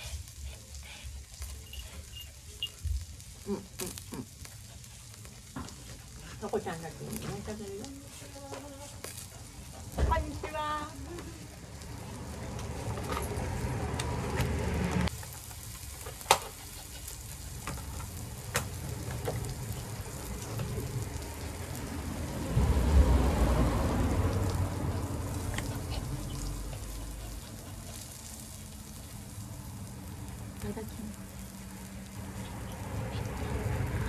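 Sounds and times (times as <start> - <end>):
beef sizzling on a grill: 0.0 - 34.0.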